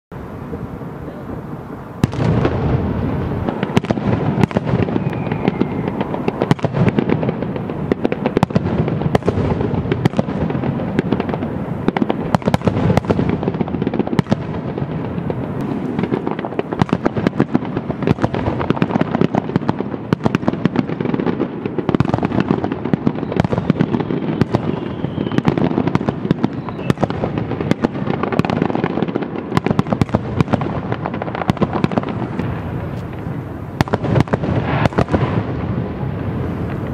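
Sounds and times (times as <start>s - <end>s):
firework bangs: 0.1s - 36.9s.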